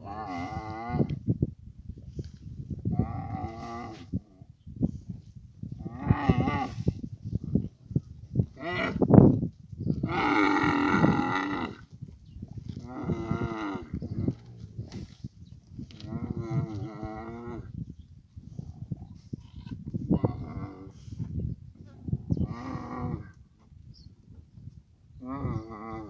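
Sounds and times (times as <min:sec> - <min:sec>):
camels moaning calls: 0:00.0 - 0:01.2, 0:02.9 - 0:04.2, 0:05.8 - 0:07.0, 0:10.0 - 0:11.8, 0:12.8 - 0:14.7, 0:15.9 - 0:17.7, 0:19.4 - 0:21.2, 0:22.4 - 0:23.4, 0:25.2 - 0:26.0
rough low rumbling: 0:00.0 - 0:26.0.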